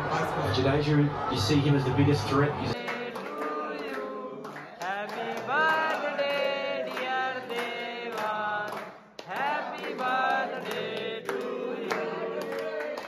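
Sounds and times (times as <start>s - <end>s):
young men chanting in unison: 0.0s - 13.0s
rhythmic hand-clapping: 2.7s - 13.0s.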